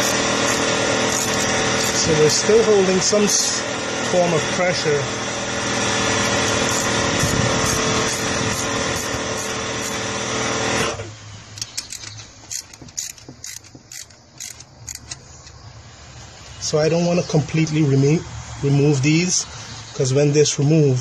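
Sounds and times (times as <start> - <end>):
wrenches clicking on metal: 0.0 - 2.1, 11.5 - 15.6
motor humming: 0.0 - 16.3.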